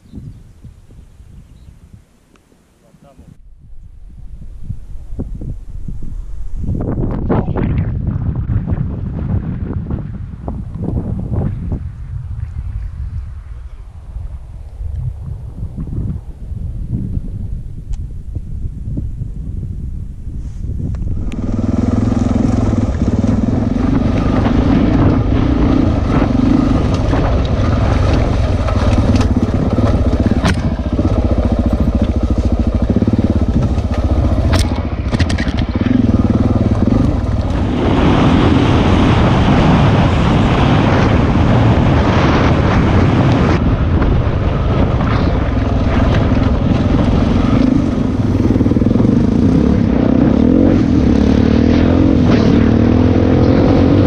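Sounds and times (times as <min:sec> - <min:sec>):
motorcycle engine revving: 0:21.0 - 0:54.0.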